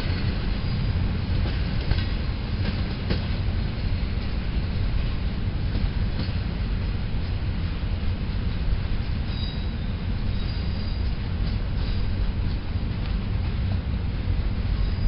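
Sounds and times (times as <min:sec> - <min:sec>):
wheels clicking over rail joints: 0:00.0 - 0:03.6
train coaches rumbling on tracks: 0:00.0 - 0:15.0
high wheel squeal: 0:09.3 - 0:11.2, 0:14.8 - 0:15.0.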